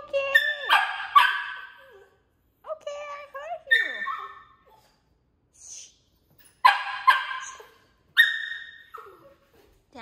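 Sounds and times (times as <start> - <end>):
dog barking: 0.4 - 2.0, 6.6 - 9.2
dog whining: 7.4 - 9.8.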